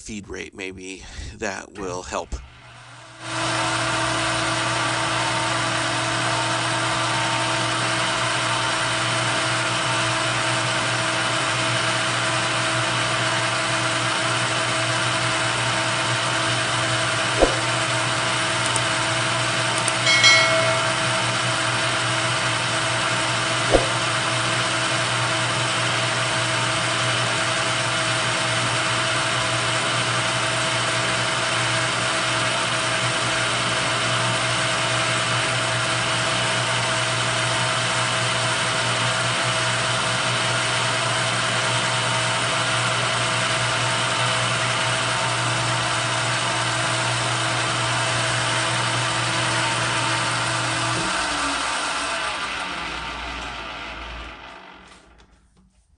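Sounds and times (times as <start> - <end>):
metal lathe running: 49.2 - 53.9.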